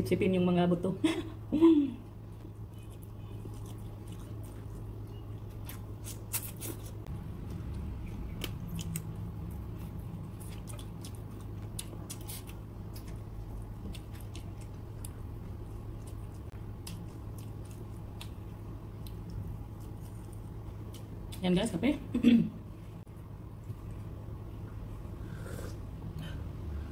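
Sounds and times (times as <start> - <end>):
steady low hum: 0.0 - 26.9
chewing: 2.5 - 21.4.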